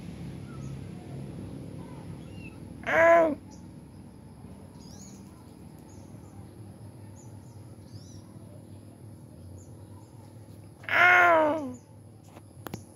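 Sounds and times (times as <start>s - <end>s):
faint bird chirps: 0.4s - 4.0s, 4.7s - 12.9s
cat meowing: 2.8s - 3.4s.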